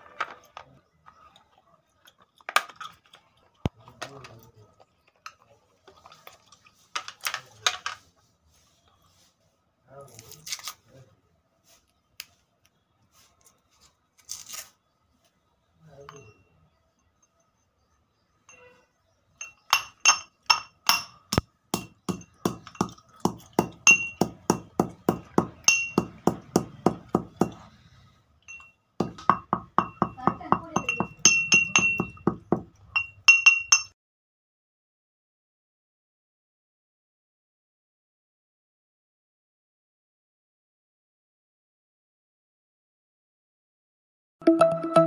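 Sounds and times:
stone pestle striking in mortar: 19.8s - 27.6s, 29.0s - 32.7s.

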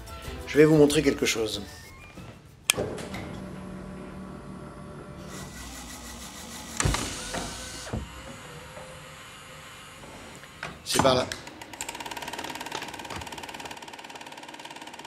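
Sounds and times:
film projector whirring: 2.7s - 15.0s
small electric motor humming: 3.6s - 10.6s.

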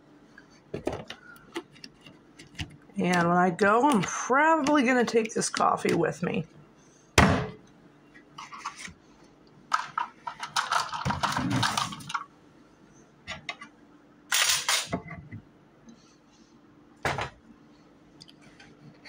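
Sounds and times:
objects knocking on counter: 17.0s - 17.4s.

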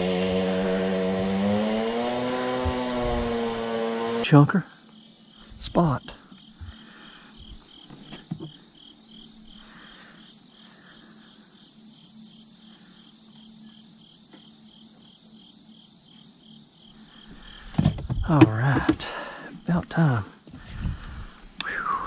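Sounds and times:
insects chirping: 0.0s - 22.0s.

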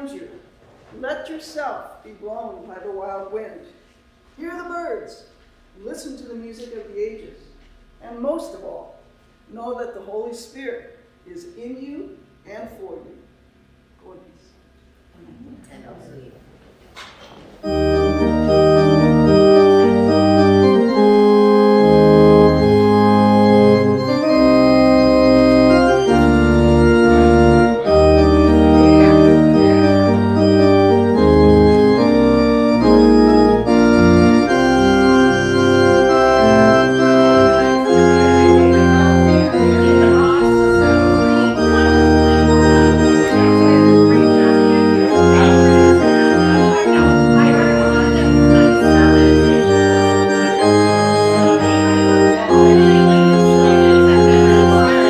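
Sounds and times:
church organ playing chords: 0.0s - 0.4s, 17.6s - 55.0s.

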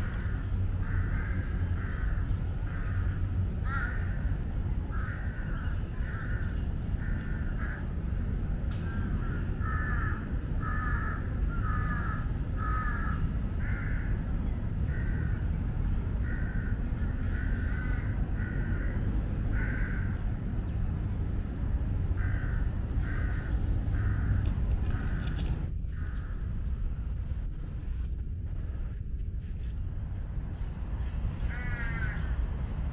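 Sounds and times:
crows cawing: 0.0s - 8.0s, 8.8s - 15.6s, 16.2s - 20.2s, 22.1s - 26.5s, 31.4s - 32.5s
steady low rumble: 0.0s - 32.9s.

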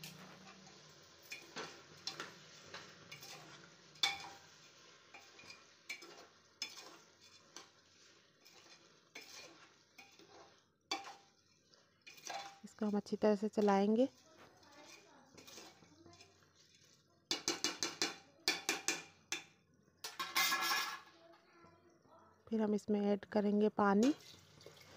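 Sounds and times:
metal spoon scraping a pot: 0.0s - 21.1s.

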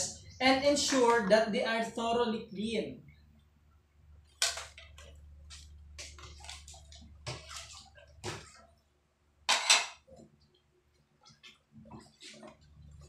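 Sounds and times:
water dripping and splashing: 4.3s - 8.7s
dishes rubbing and clinking: 9.5s - 10.1s.

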